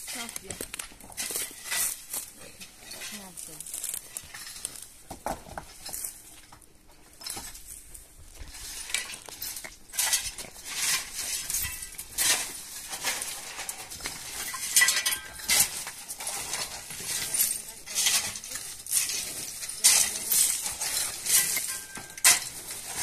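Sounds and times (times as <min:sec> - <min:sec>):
metal shovels scraping gravel: 0:00.0 - 0:23.0
stones clinking: 0:07.2 - 0:23.0.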